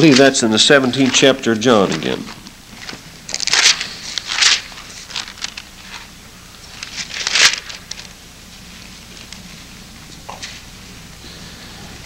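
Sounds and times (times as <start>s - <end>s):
small paper crackles: 0.0s - 6.1s, 6.7s - 8.2s
thin pages turning and rustling: 0.0s - 9.5s.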